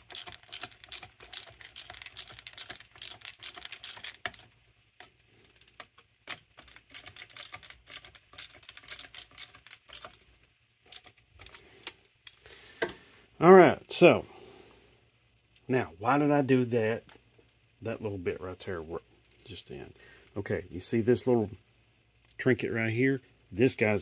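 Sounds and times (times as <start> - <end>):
small metal parts clicking and rattling: 0.0 - 12.5.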